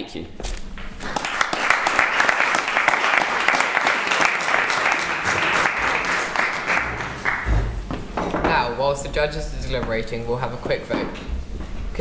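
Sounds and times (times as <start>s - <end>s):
crowd applause: 1.0s - 7.9s.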